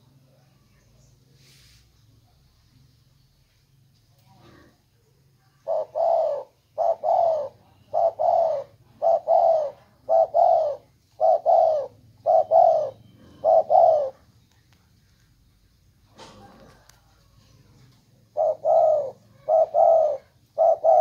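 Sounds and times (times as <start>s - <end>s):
dove cooing: 5.5s - 14.3s, 16.1s - 21.0s.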